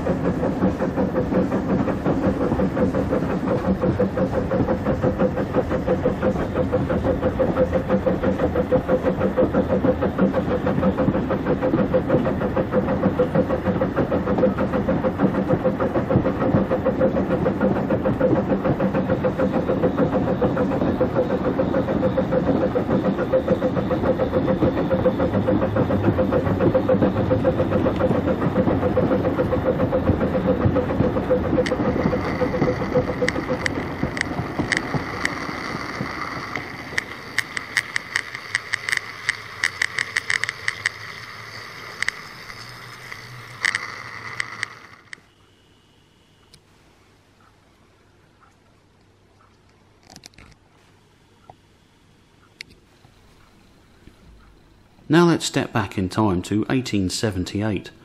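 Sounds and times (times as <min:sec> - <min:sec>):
electric motor hum: 0:00.0 - 0:45.4
small wheels rumbling on rails: 0:00.0 - 0:45.4.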